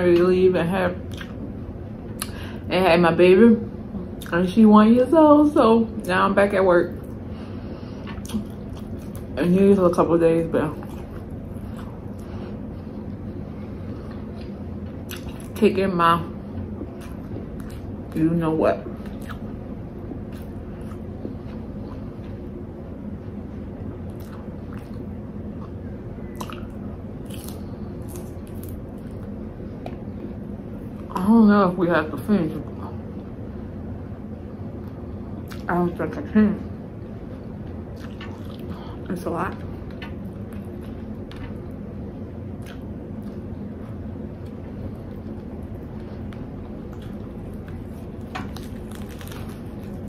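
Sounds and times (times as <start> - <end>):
low hum: 0.0 - 50.0
wet squishy chewing: 8.0 - 9.4, 10.8 - 15.6, 19.0 - 19.6, 24.0 - 30.0, 37.9 - 38.8, 42.5 - 50.0
lettuce leaves crinkling: 47.0 - 50.0.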